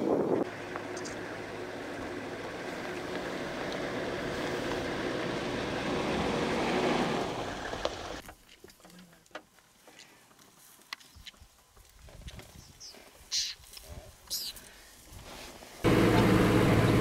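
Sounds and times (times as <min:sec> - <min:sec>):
engine humming: 0:00.3 - 0:08.2, 0:15.8 - 0:17.0.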